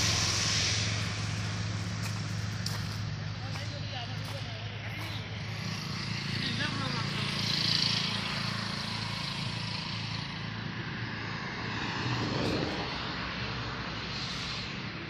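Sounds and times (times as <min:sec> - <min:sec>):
hiss: 0:00.0 - 0:03.3, 0:12.3 - 0:15.0
engine running steadily: 0:00.0 - 0:15.0.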